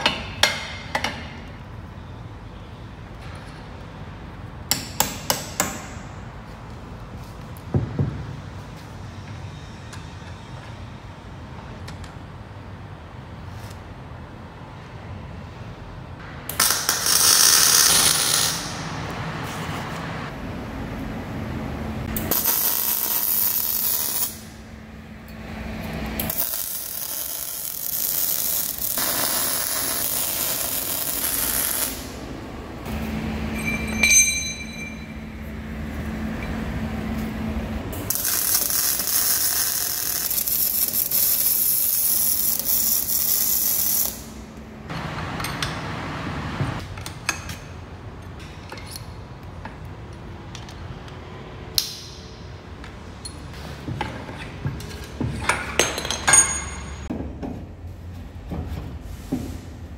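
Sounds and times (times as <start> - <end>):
welding arc crackling and hissing: 16.5 - 18.9, 22.2 - 24.6, 26.2 - 32.3, 38.0 - 44.4
brief high tone: 33.0 - 35.5.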